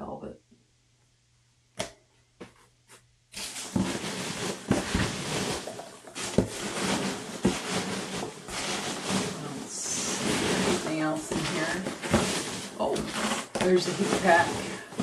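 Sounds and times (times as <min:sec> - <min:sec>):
foam packing peanuts rustling: 0:03.4 - 0:15.0.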